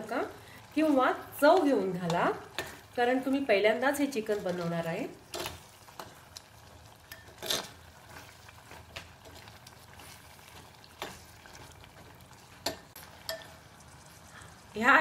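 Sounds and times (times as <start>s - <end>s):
faint sizzle: 0.0s - 15.0s
spoon tapping and scraping pot: 5.3s - 10.2s, 10.9s - 13.6s.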